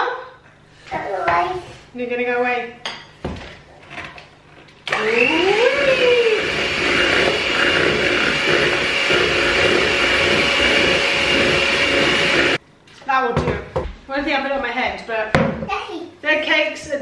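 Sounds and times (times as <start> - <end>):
electric hand mixer whine: 4.9 - 12.6.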